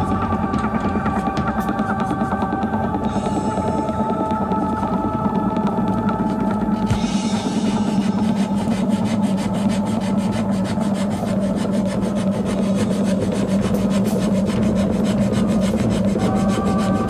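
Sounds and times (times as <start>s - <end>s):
steady low hum: 0.0s - 17.0s
sandpaper rubbing on metal: 7.9s - 17.0s.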